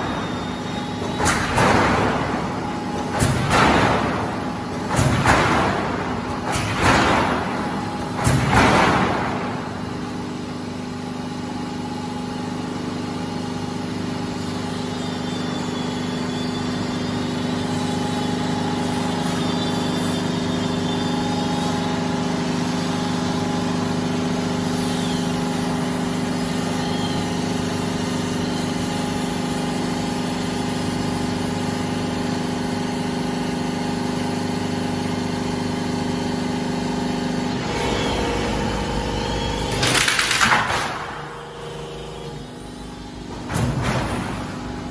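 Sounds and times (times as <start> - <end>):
roll forming machine running: 0.0 - 44.9
loud noise: 37.4 - 42.6.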